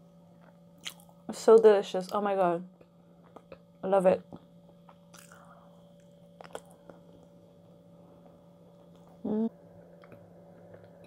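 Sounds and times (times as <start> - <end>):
person chewing close to microphone: 4.9 - 5.5, 6.4 - 7.3, 10.0 - 11.0
wet mouth clicks: 5.1 - 5.4, 6.4 - 6.8
person humming mm: 9.2 - 9.6.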